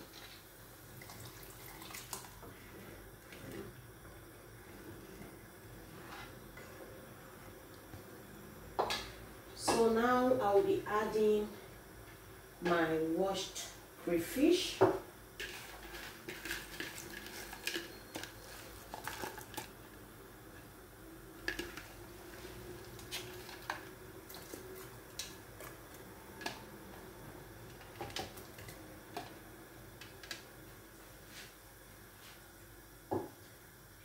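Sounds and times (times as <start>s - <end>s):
plastic bag crinkling: 15.7s - 19.7s.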